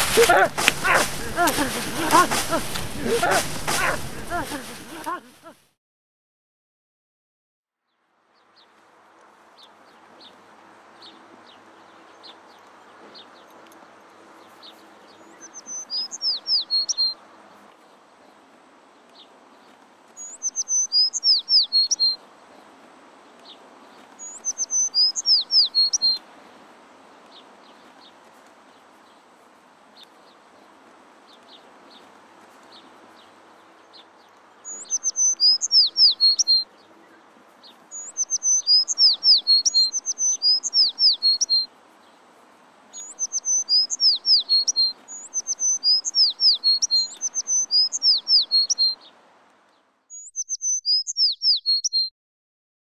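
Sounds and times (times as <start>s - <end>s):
songbird singing: 0.0s - 5.5s, 9.6s - 26.5s, 27.2s - 42.2s, 42.9s - 52.1s
faint steady background hiss: 0.0s - 5.6s.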